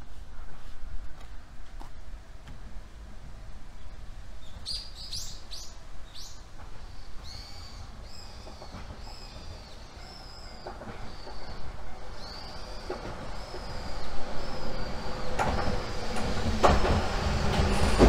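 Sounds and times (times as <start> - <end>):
bird chirping: 3.8 - 15.8.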